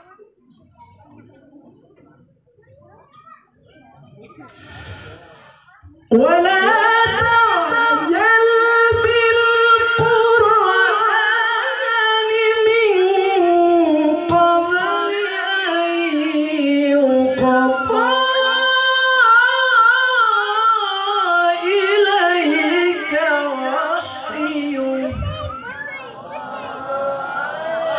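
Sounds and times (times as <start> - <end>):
man reciting melodically: 6.2 - 25.4.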